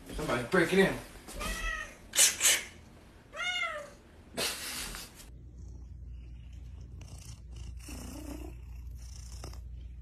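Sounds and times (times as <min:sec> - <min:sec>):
cat meowing: 0:01.4 - 0:02.0, 0:03.3 - 0:04.0
cat purring: 0:05.3 - 0:10.0.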